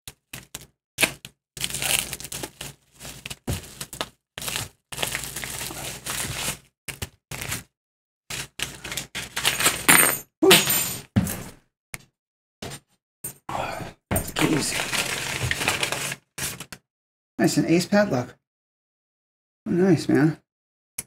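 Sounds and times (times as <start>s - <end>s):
bubble wrap and paper crinkling: 0.1s - 7.7s, 8.3s - 9.7s, 14.4s - 16.7s.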